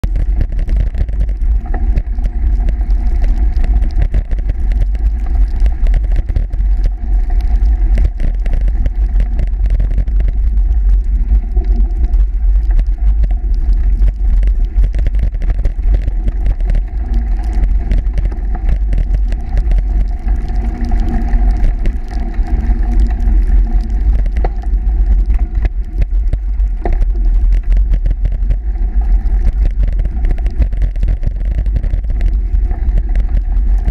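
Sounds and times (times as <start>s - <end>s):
bicycle rumbling over snow: 0.0s - 33.9s.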